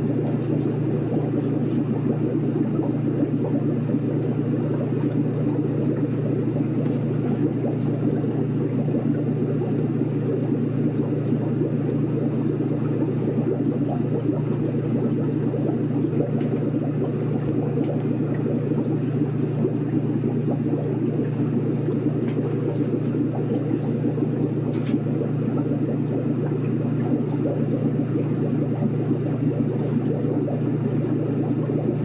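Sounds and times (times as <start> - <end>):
low rumbling hum: 0.0 - 32.0.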